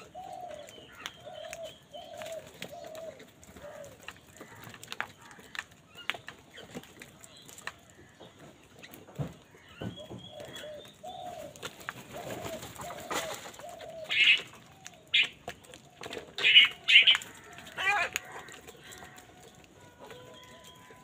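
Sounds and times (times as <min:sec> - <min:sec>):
crows cawing: 0:02.7 - 0:05.7, 0:16.4 - 0:20.6.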